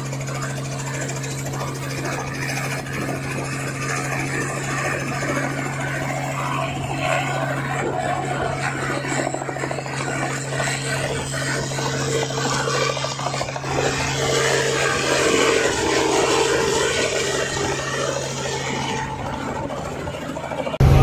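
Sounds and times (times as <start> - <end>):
helicopter engine and rotor: 0.0 - 21.0.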